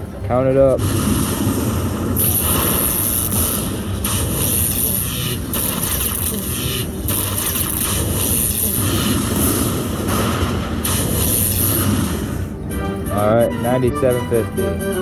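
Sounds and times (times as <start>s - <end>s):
slot machine counting up: 12.8s - 15.0s.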